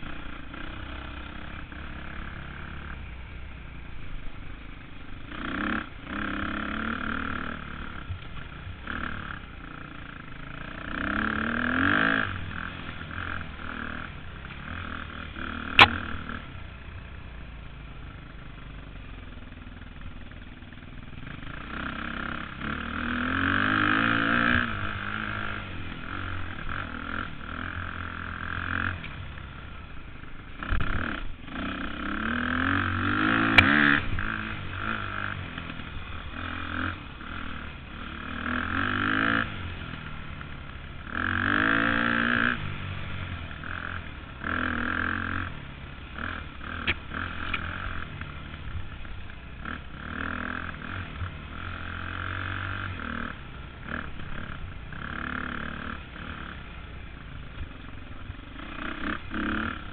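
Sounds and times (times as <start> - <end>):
dirt bike engine revving: 0.0 - 3.9, 4.8 - 17.5, 21.1 - 57.2, 58.2 - 59.9
sharp click: 15.7 - 16.2, 46.8 - 47.7.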